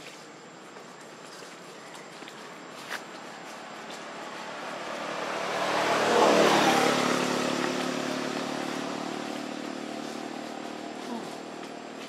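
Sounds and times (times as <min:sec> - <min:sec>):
vehicle engine running: 0:03.1 - 0:12.0.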